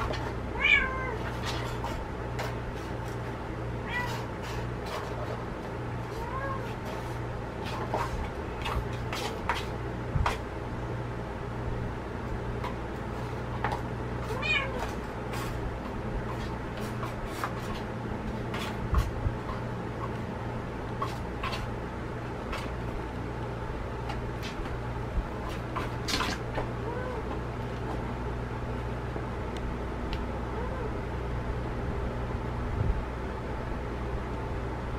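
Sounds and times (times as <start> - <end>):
kittens mewing: 3.8 - 4.4, 6.0 - 6.9, 14.2 - 15.0, 26.7 - 27.4.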